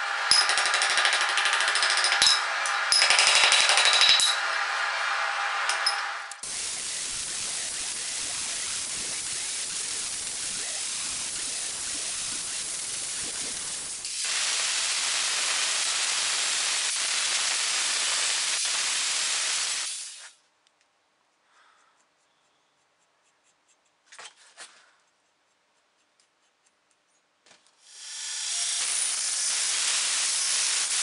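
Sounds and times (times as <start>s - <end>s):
grinder cutting steel: 0.0s - 20.2s, 27.9s - 31.0s.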